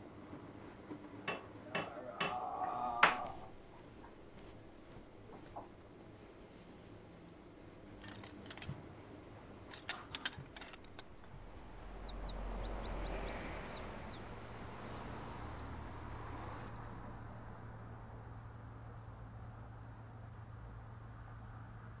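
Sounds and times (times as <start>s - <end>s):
low background rumble: 1.6s - 22.0s
birds chirping: 7.9s - 18.4s
light clicks and knocks: 9.6s - 11.8s.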